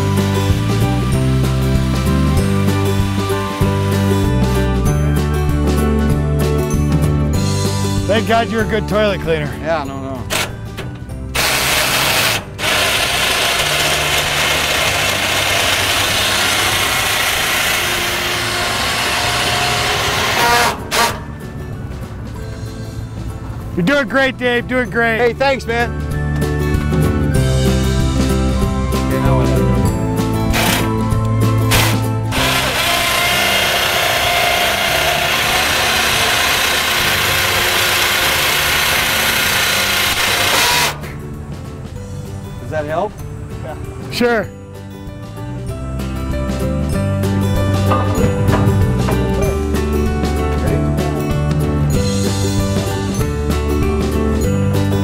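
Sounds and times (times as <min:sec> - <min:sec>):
barge motor running: 0:00.0 - 0:05.0, 0:10.2 - 0:22.7, 0:29.9 - 0:42.1, 0:46.1 - 0:53.1.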